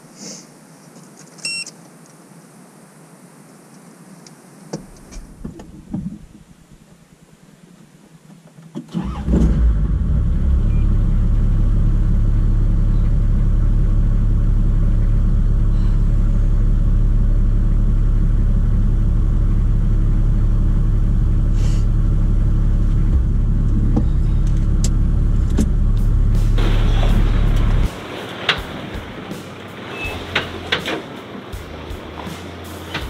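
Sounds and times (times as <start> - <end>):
car engine droning: 8.9 - 33.0.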